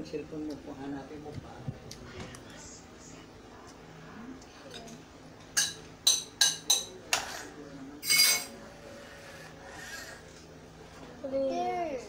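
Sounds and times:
fork clinking against ceramic bowl: 0:05.5 - 0:07.2, 0:08.0 - 0:08.5.

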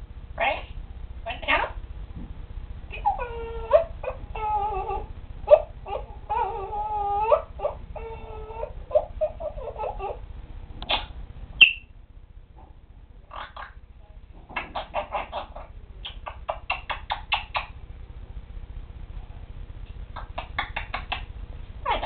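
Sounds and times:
parrot vocalising: 0:02.9 - 0:10.2, 0:10.9 - 0:11.9, 0:13.3 - 0:13.8, 0:14.6 - 0:17.8, 0:20.2 - 0:22.0.

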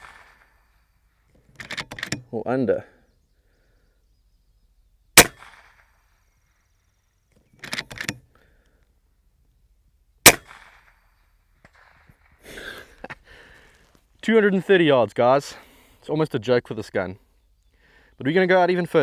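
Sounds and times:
air rifle shots: 0:00.0 - 0:00.6, 0:05.2 - 0:06.0, 0:10.2 - 0:11.0
rifle mechanism clicks: 0:01.4 - 0:02.2, 0:07.5 - 0:08.2.

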